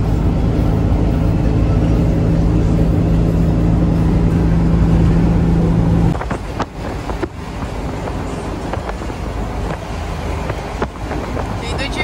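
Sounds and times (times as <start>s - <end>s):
road noise: 0.0s - 12.0s
van engine droning: 0.0s - 12.0s.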